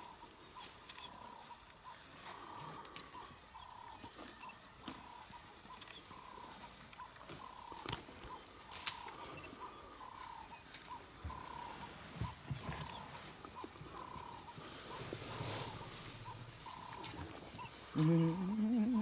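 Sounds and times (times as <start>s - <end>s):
faint repeated chirp: 3.2s - 6.4s
twigs and branches snapping: 8.7s - 9.1s.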